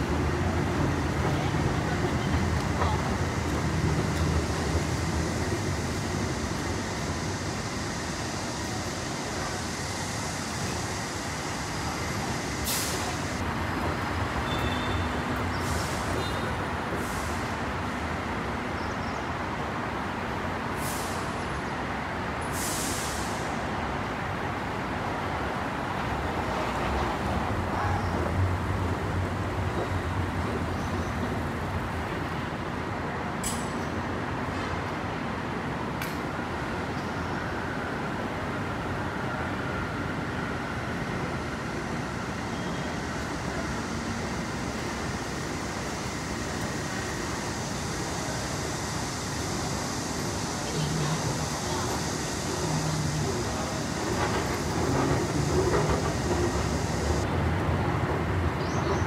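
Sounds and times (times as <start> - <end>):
road traffic rumble: 0.0 - 59.0
air brakes hissing: 4.2 - 13.4, 14.4 - 17.7, 20.8 - 21.5, 22.4 - 23.7, 42.6 - 57.2.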